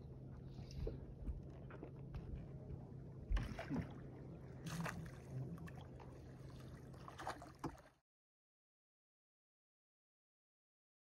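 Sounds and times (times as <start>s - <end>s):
low steady hum: 0.0s - 8.0s.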